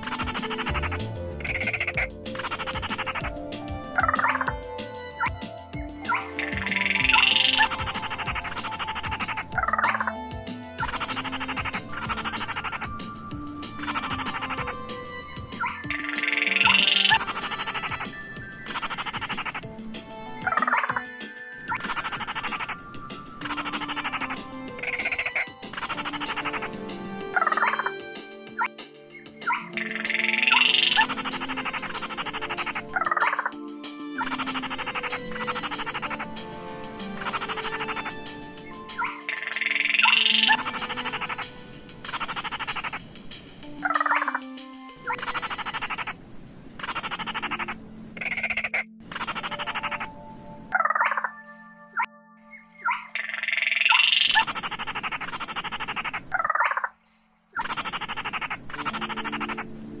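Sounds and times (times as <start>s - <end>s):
rapid rattling bird trill: 0.0s - 4.6s, 6.0s - 10.1s, 10.8s - 21.0s, 21.6s - 27.9s, 29.2s - 33.6s, 34.2s - 46.2s, 46.8s - 50.2s, 52.8s - 60.0s
steady low tones: 0.0s - 4.8s
low steady tones: 28.9s - 53.2s.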